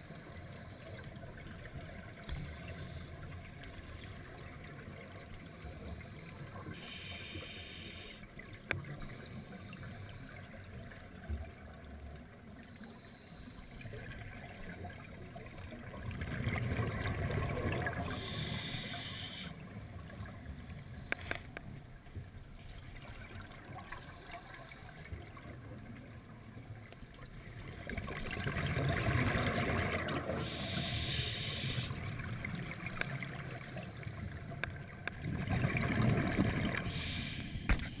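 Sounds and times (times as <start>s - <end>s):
regulator hissing inhalation: 6.8s - 8.2s, 18.1s - 19.6s, 30.4s - 32.0s, 36.9s - 38.0s
bubbles gurgling underwater: 13.9s - 18.3s, 27.6s - 30.7s, 34.4s - 37.1s.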